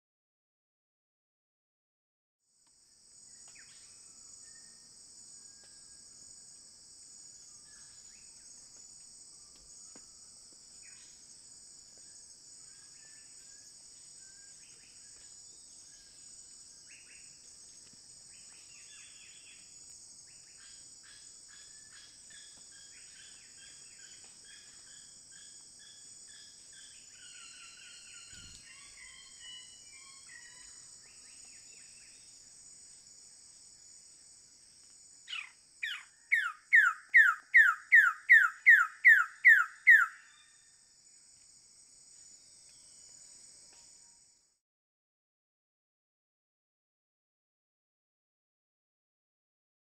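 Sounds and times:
forest insects drone: 2.5 - 44.6
loud downslurred bird calls: 35.3 - 40.4
faint bird calls: 35.3 - 40.6.

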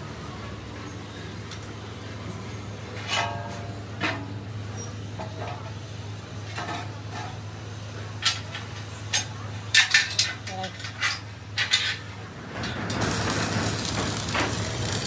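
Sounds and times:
low hum of workshop machinery: 0.0 - 15.0
metal wheel rim clanking: 3.0 - 4.3.

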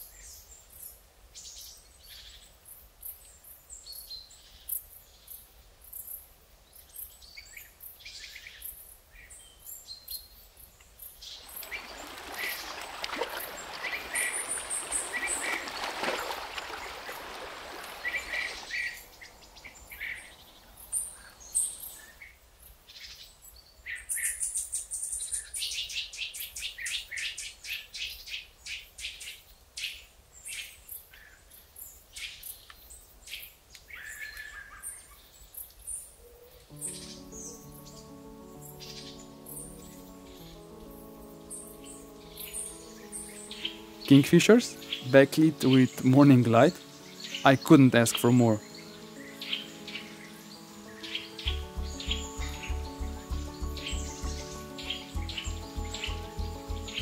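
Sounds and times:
birds chirping: 11.2 - 22.2, 36.7 - 57.0.

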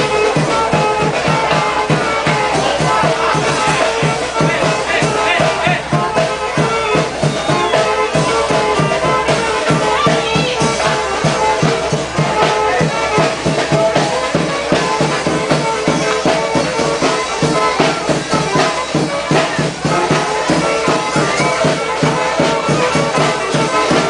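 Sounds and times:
loud dance music: 3.0 - 6.0.

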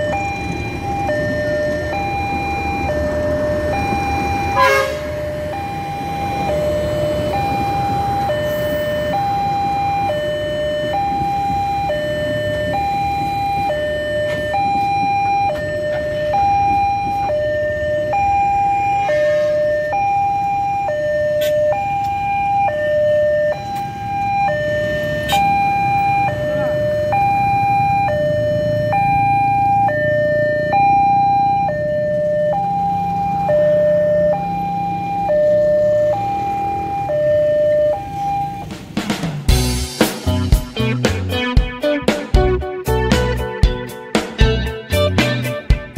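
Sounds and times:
train carriages rumbling: 0.0 - 20.4
two-tone crossing alarm: 0.0 - 45.9.

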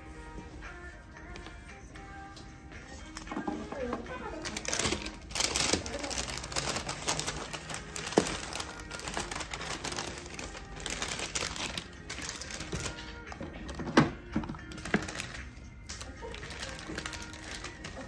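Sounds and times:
paper bag crinkling and rustling: 3.7 - 18.0.

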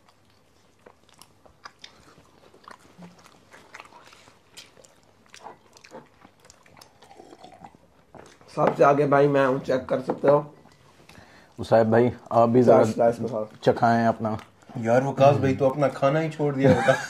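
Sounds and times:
chewing and biting food: 0.0 - 8.6, 10.5 - 15.4.

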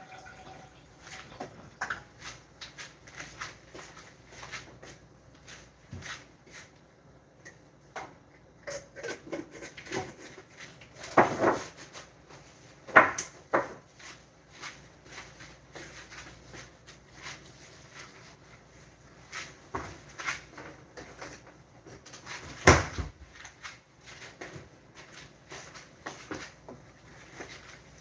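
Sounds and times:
kitchen items clattering: 0.0 - 2.2.

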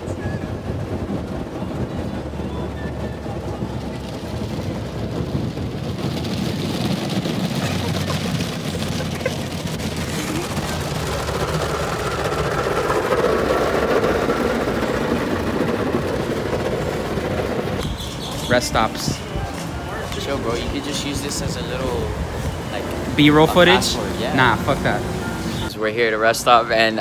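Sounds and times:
car wash brushes and water spray: 4.0 - 15.2.

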